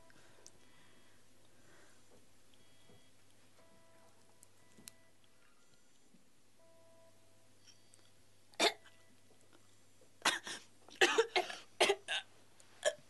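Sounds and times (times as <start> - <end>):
person coughing: 8.6 - 8.9, 10.2 - 13.0.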